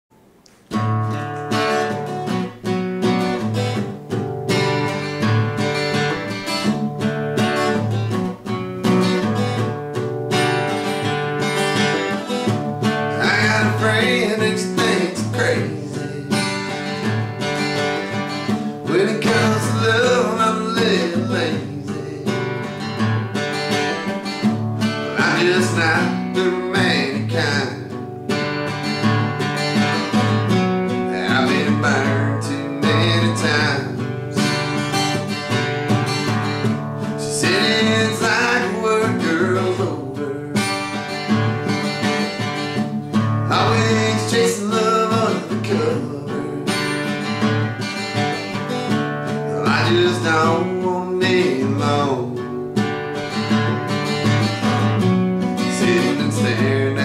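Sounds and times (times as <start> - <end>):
acoustic guitar country song: 0.2 - 57.0.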